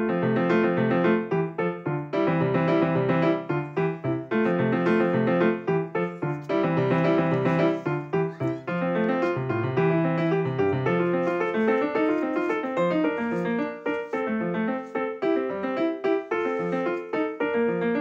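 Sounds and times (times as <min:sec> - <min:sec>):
keyboard instrumental music: 0:00.0 - 0:18.0.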